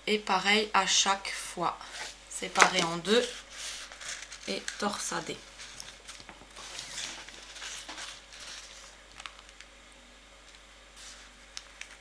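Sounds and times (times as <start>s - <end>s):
pastry rustling on baking paper: 1.4s - 9.6s, 10.9s - 12.0s.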